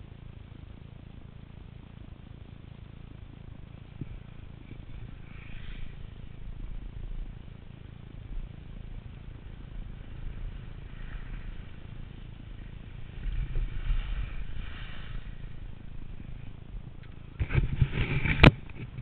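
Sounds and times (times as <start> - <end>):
skis sliding on snow: 4.6 - 7.0, 8.4 - 16.8.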